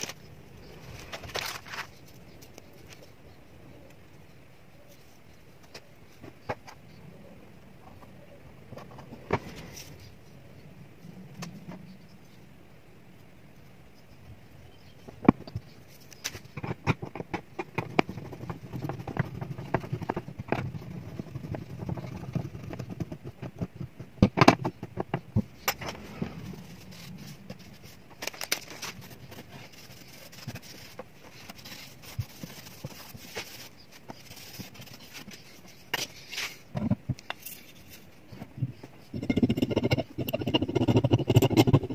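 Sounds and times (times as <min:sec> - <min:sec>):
faint rubbing: 0:25.4 - 0:36.7.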